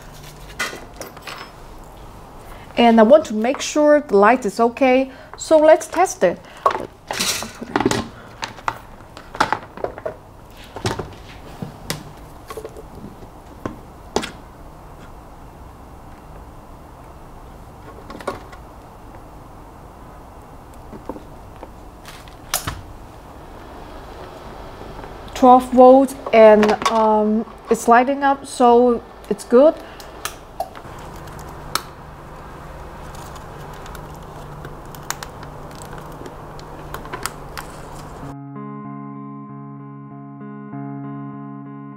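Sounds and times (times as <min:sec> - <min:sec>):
low hum: 0:22.9 - 0:41.9.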